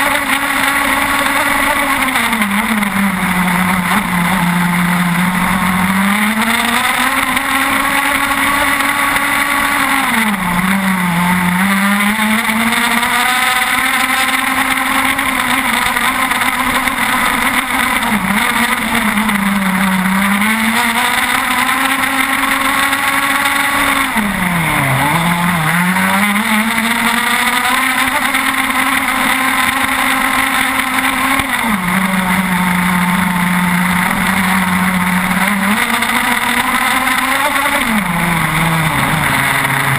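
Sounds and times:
two-stroke engine at high revs: 0:00.0 - 0:39.9.

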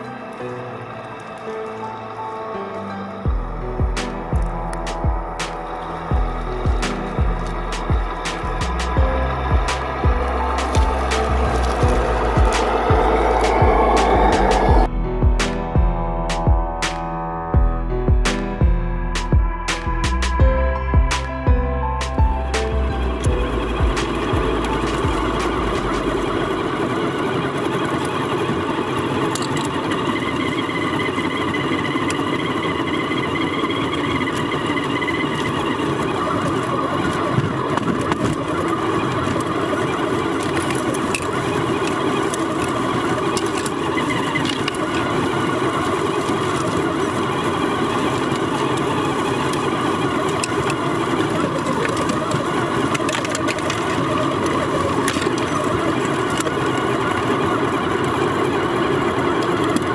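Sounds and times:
electric motor whirring: 0:03.3 - 0:14.9.

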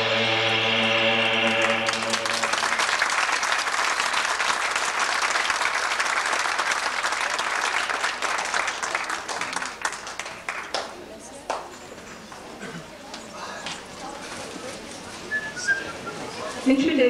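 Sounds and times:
music closing chord: 0:00.0 - 0:03.3
audience applauding: 0:01.3 - 0:11.0.

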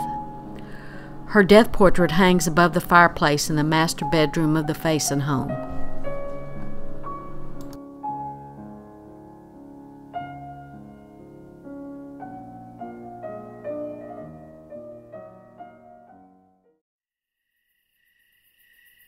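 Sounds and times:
slow soft solo piano: 0:05.5 - 0:16.6.

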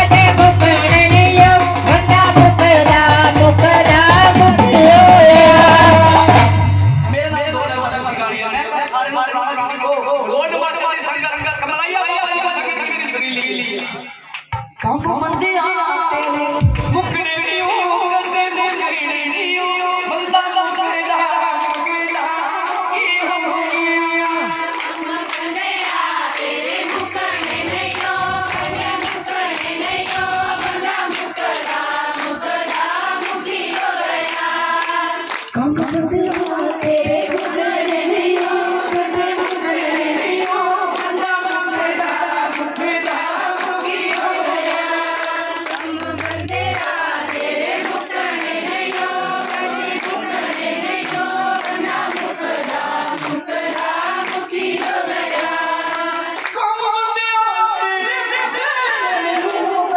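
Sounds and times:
group singing along: 0:00.0 - 0:06.7, 0:21.7 - 0:59.9
man singing lead: 0:00.0 - 0:10.4, 0:14.8 - 0:24.8, 0:35.5 - 0:37.3, 0:56.5 - 0:59.9.

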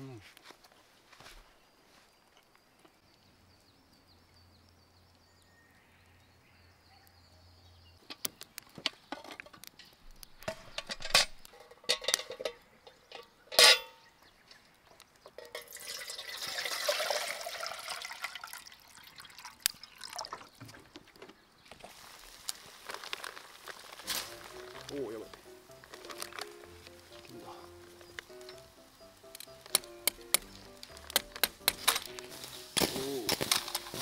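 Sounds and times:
water pouring into metal tin: 0:15.5 - 0:20.7
sharp clicks and knocks: 0:29.3 - 0:34.0.

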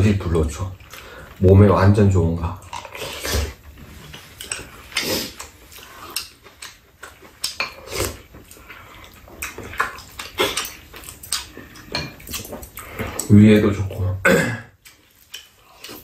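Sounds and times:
chewing and mouth sounds: 0:02.6 - 0:13.3, 0:14.8 - 0:16.0.

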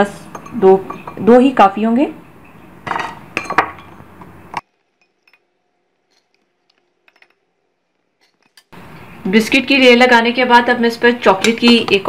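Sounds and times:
dishes clinking: 0:00.2 - 0:01.3, 0:02.4 - 0:04.3.

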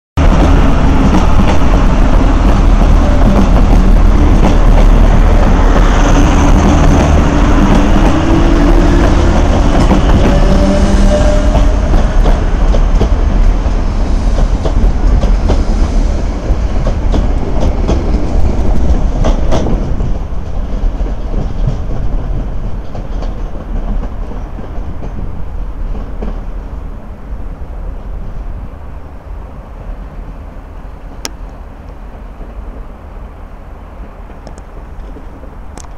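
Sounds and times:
wheels clacking over rail joints: 0:00.2 - 0:26.6.

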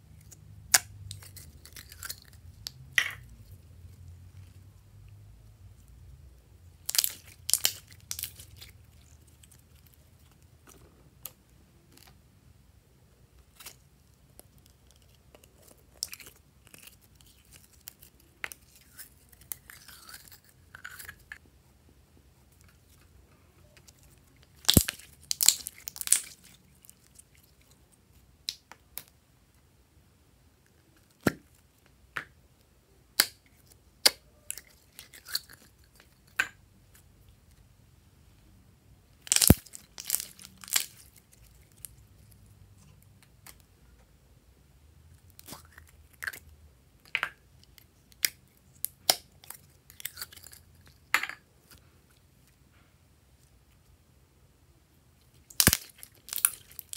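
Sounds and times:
slime crackling and squelching: 0:06.7 - 0:12.1, 0:23.8 - 0:27.8, 0:39.2 - 0:43.6, 0:55.4 - 0:56.9.

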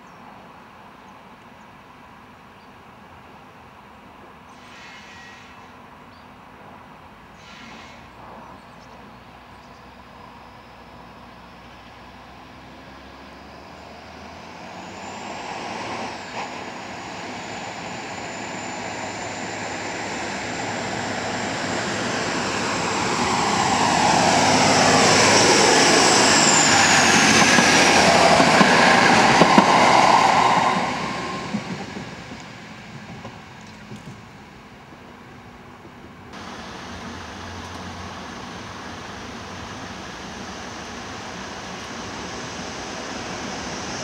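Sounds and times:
diesel railcar passing: 0:00.3 - 0:44.0.

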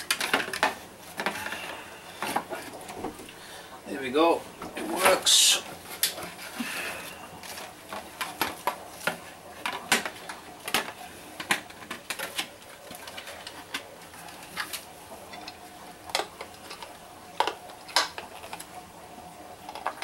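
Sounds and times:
plastic parts clicking and knocking: 0:00.0 - 0:01.6, 0:07.4 - 0:13.9.

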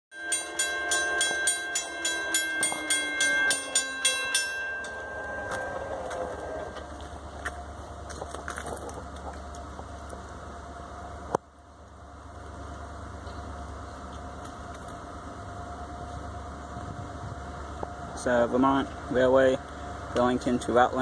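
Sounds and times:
crossing bell ringing: 0:00.1 - 0:07.8
falling hum: 0:00.1 - 0:20.2
low steady rumble: 0:00.2 - 0:21.0.

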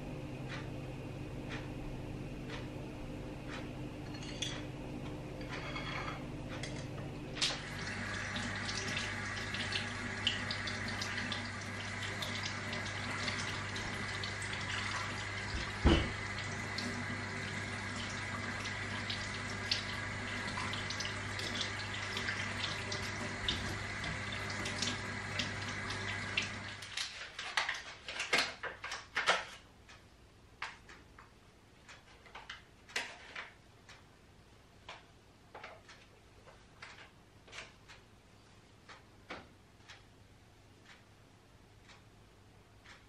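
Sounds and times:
steady low hum: 0:00.0 - 0:26.7
tap running into steel sink: 0:15.5 - 0:16.2
thump: 0:15.8 - 0:16.1.

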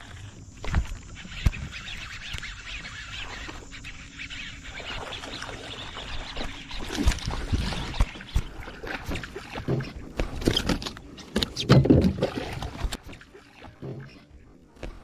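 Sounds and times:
fish splashing in water: 0:04.8 - 0:15.0
knocks and clicks from kayak: 0:06.8 - 0:15.0.

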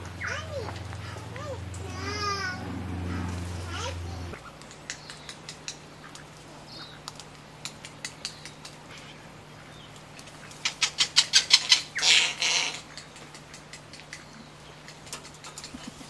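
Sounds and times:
sharp clicks and taps: 0:04.3 - 0:06.3, 0:07.0 - 0:09.1, 0:12.9 - 0:16.0.

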